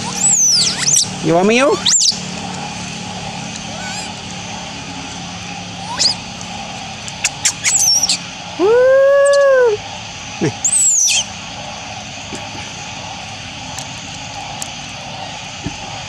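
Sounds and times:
animal chirps and whistles: 0.0s - 2.2s, 5.8s - 6.2s, 7.2s - 8.2s, 9.0s - 9.6s, 10.6s - 11.3s
loud arched animal call: 0.0s - 2.2s, 3.7s - 4.2s, 5.8s - 6.2s, 10.4s - 11.3s.

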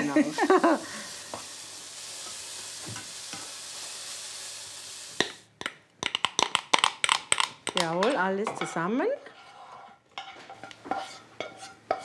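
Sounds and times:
vegetables sizzling in a pan: 0.0s - 5.5s.

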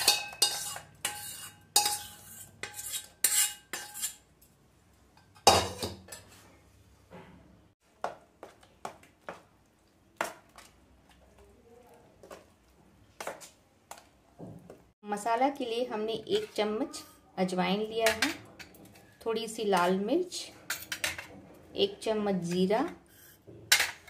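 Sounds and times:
steel spoon clinking and scraping: 0.0s - 4.6s, 5.2s - 6.4s.

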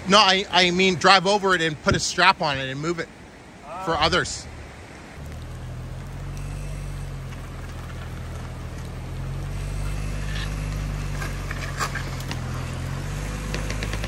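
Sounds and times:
branches dragging across gravel: 4.0s - 14.0s
engine running under load: 4.0s - 14.0s.

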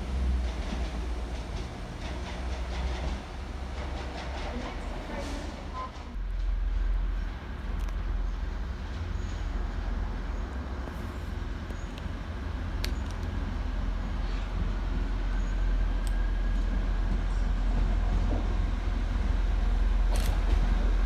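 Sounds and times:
diesel train engine rumble: 0.0s - 21.0s.

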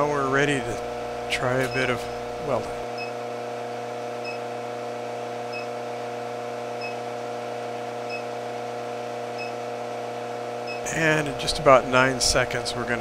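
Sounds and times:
induction heater humming: 0.0s - 13.0s.

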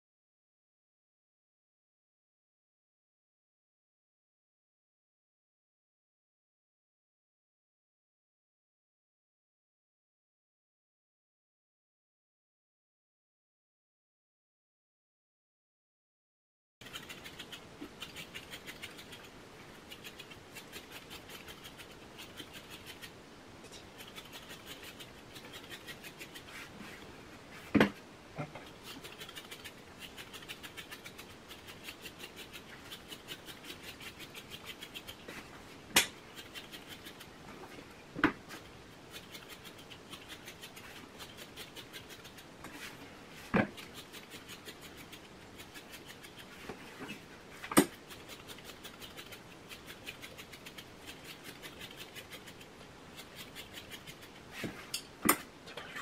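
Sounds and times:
stripping knife scratching through hair: 16.8s - 27.1s, 28.6s - 37.4s, 38.4s - 55.9s.

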